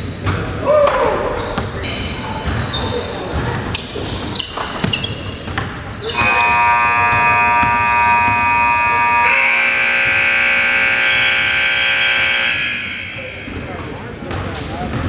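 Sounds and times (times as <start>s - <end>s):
basketball bouncing on court: 2.4s - 8.7s, 13.2s - 15.0s
scoreboard buzzer blaring: 6.1s - 13.7s.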